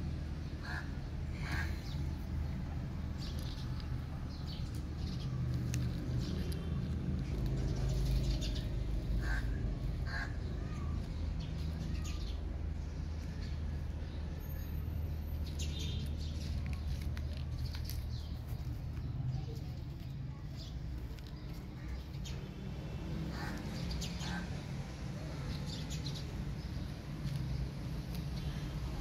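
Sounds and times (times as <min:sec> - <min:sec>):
steady low rumble: 0:00.0 - 0:14.3
birds chirping: 0:00.3 - 0:29.0.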